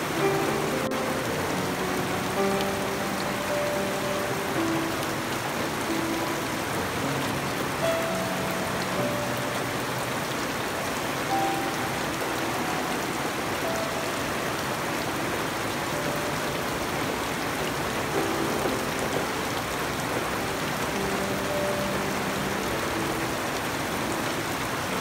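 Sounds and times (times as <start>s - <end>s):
rain on foliage and ground: 0.0s - 25.0s.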